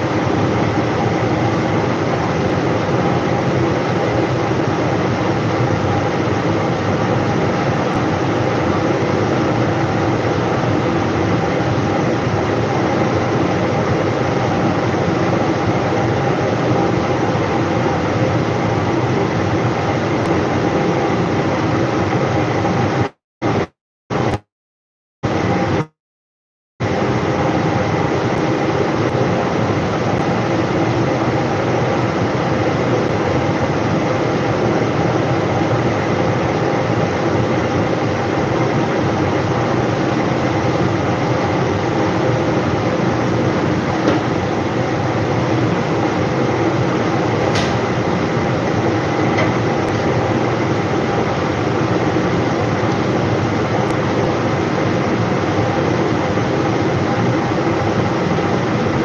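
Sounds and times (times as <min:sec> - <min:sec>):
extractor fan rushing: 0:41.9 - 0:54.8.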